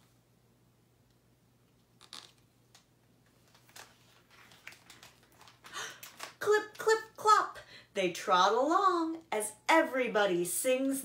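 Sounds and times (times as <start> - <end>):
page turning: 3.2 - 6.8
paper rustling: 3.3 - 6.8.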